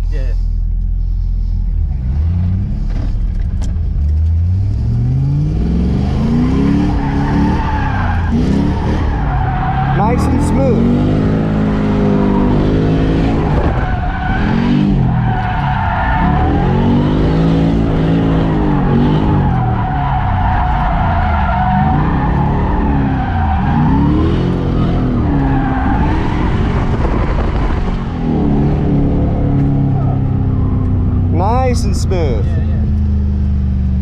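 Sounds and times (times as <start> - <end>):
car engine revving: 1.0 - 34.0
tyres squealing: 6.9 - 11.0.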